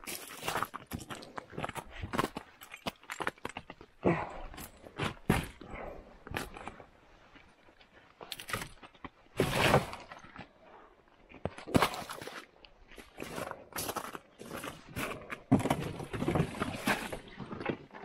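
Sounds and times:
crunches and knocks on icy ground: 11.3s - 18.0s.

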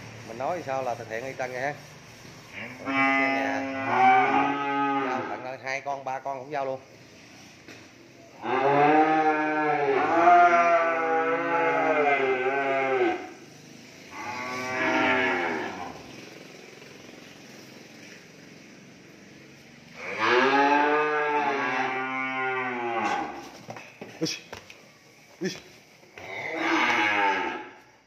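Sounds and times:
cattle mooing: 2.6s - 5.4s, 8.4s - 13.3s, 14.1s - 16.1s, 20.0s - 23.4s, 26.2s - 27.8s.

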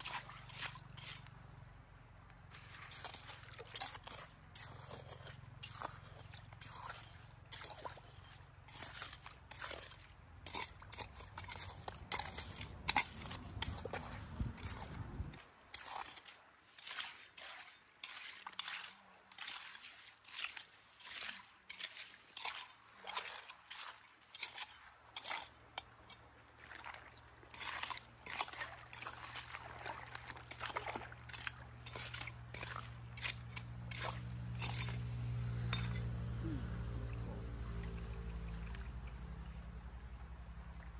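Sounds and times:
hands sloshing through stream water: 0.0s - 1.6s, 2.4s - 35.0s, 35.7s - 40.9s.

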